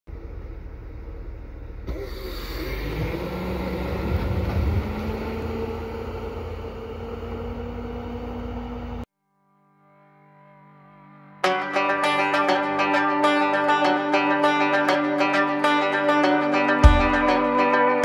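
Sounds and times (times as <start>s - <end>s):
plow blade dragging through snow: 0.1s - 9.1s
truck engine under load: 0.1s - 9.1s.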